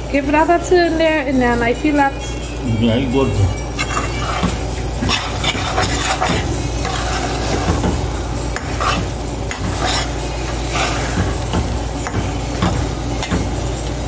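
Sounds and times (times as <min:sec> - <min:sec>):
metal spoon scraping a pot: 0:03.7 - 0:14.0.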